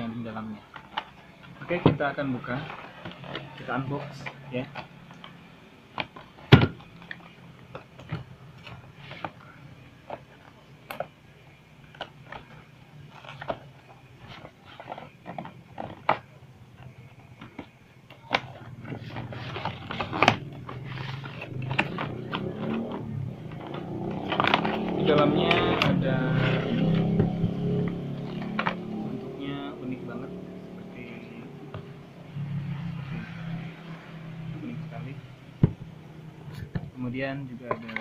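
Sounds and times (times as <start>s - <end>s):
cardboard scraping and rustling: 0.8s - 4.8s, 7.9s - 11.0s, 11.9s - 29.0s.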